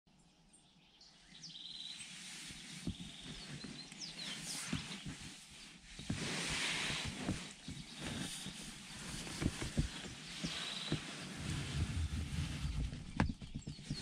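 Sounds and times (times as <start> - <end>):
birds chirping: 0.4 - 6.2, 6.9 - 14.0
bedding rustling: 2.2 - 14.0.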